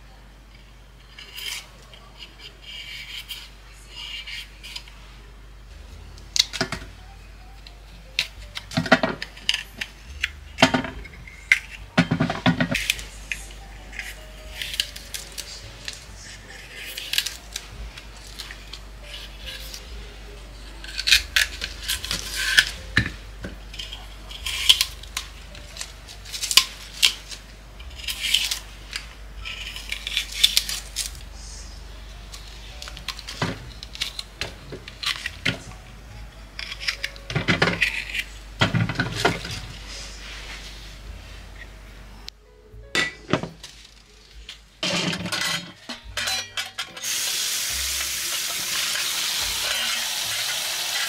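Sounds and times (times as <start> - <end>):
pieces clattering in metal tray: 8.5 - 16.0, 36.6 - 39.7, 44.8 - 51.0.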